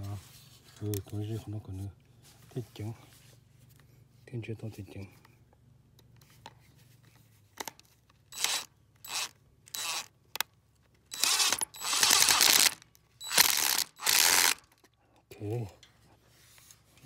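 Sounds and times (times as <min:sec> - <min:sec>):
impact driver hammering screw: 0:08.4 - 0:10.1, 0:11.1 - 0:14.6.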